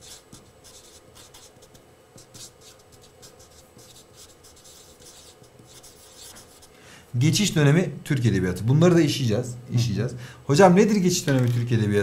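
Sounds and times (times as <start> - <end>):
marker writing on whiteboard: 0.0 - 6.7.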